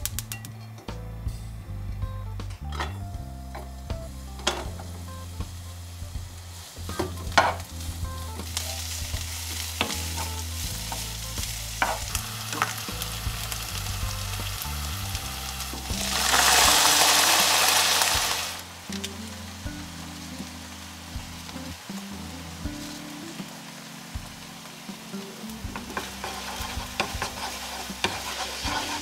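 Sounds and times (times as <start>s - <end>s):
food sizzling in frying pan: 3.2s - 29.0s
utensil tapping pan: 6.9s - 7.8s, 8.4s - 12.9s, 25.0s - 29.0s.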